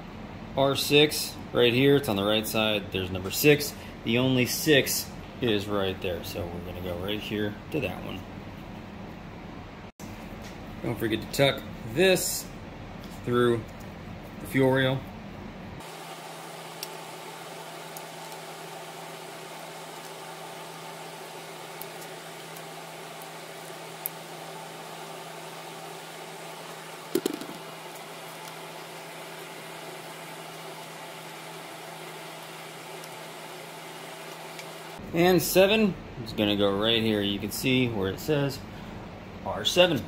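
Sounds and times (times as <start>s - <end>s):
steady mechanical hum: 0.0s - 40.0s
plastic clicks and knocks: 27.2s - 27.6s.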